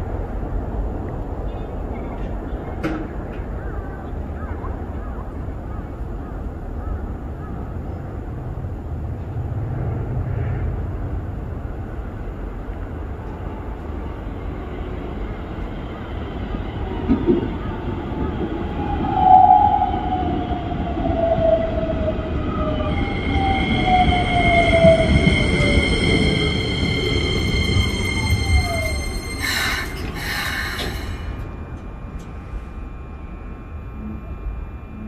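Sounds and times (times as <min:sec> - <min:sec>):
train rumbling on rails: 0:00.0 - 0:35.0
train motor whine falling: 0:22.7 - 0:35.0.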